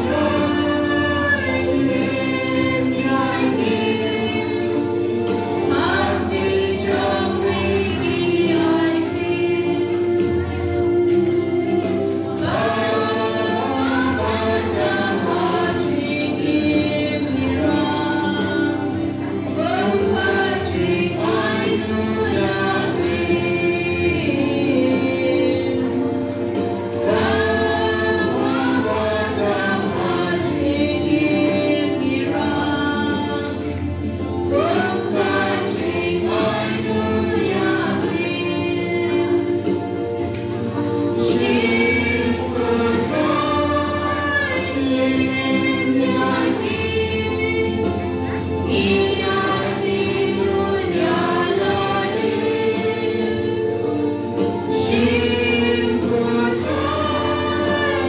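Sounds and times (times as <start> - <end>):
choir singing a hymn: 0.0 - 58.0
keyboard sustained chords: 0.0 - 58.0.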